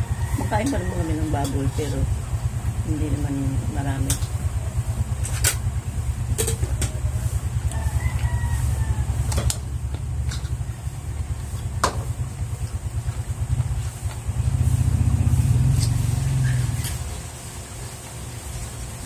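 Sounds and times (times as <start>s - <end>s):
faint rooster crow: 0.0s - 1.5s, 7.2s - 9.6s
steady low hum: 0.0s - 19.0s.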